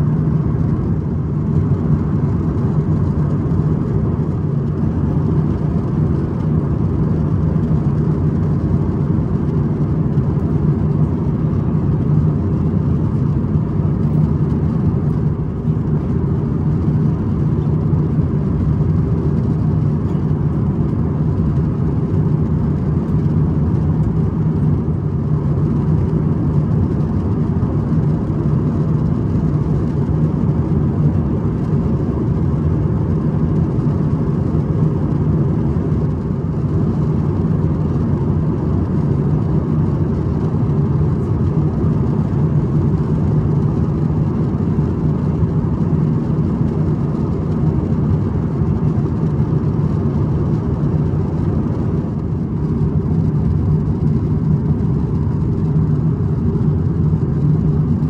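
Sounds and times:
aircraft cabin drone: 0.0 - 58.0.

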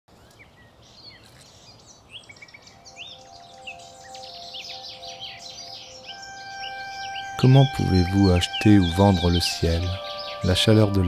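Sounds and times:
songbirds singing: 0.1 - 11.0
low held music notes: 2.8 - 11.0.

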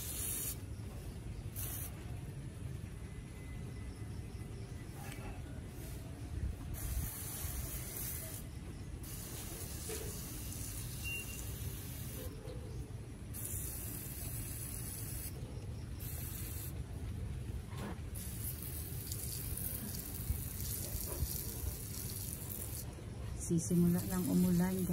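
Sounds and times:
water spraying from nozzle: 0.0 - 0.6, 6.8 - 12.3, 13.4 - 15.4, 18.1 - 22.9, 23.7 - 24.9.

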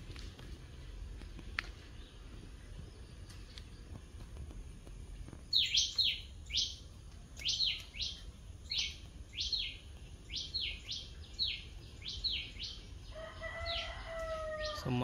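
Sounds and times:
bird chirping: 5.2 - 15.0.

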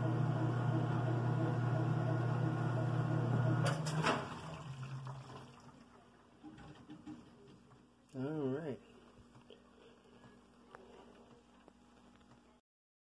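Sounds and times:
washing machine motor hum: 0.0 - 8.4.

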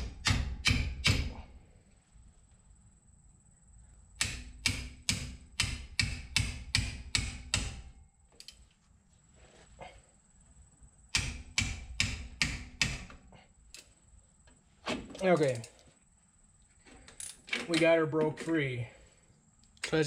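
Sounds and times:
hammer striking metal wrench: 0.1 - 1.4, 4.2 - 7.9, 11.2 - 13.1.

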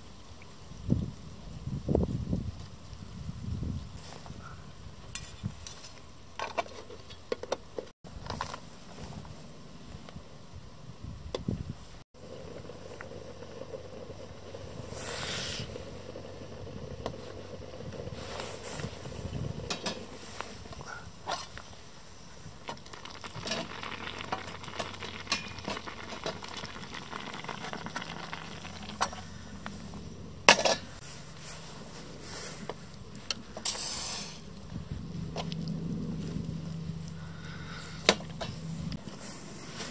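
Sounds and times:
pasta simmering and sizzling: 21.5 - 33.8.

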